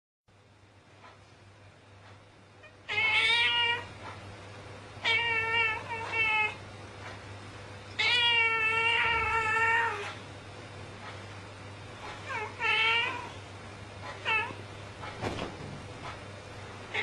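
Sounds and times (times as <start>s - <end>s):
cat yowling: 5.0s - 6.6s, 8.0s - 10.1s.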